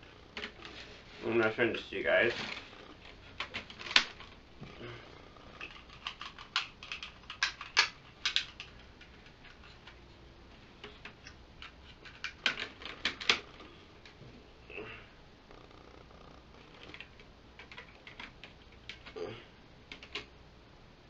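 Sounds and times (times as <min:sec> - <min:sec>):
plastic toy parts clicking together: 0:05.6 - 0:10.0.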